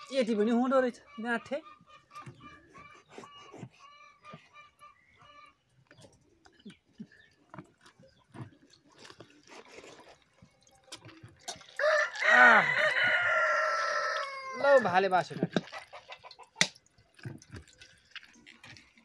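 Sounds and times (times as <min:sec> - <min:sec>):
hen clucking: 0:00.0 - 0:08.6, 0:11.7 - 0:16.8
rooster crowing: 0:11.8 - 0:14.8.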